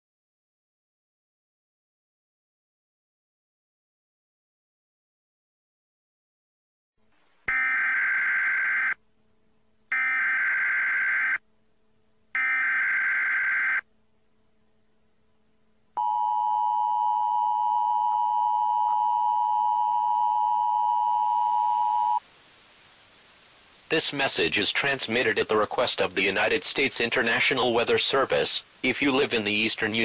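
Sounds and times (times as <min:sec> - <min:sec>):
steady dual tone alert: 0:16.0 - 0:22.2.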